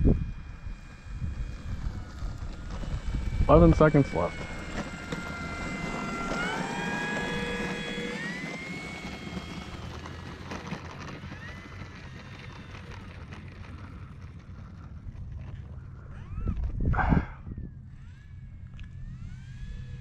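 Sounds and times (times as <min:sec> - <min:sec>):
low wind rumble: 0:00.0 - 0:20.0
model plane electric motor whining: 0:00.0 - 0:20.0.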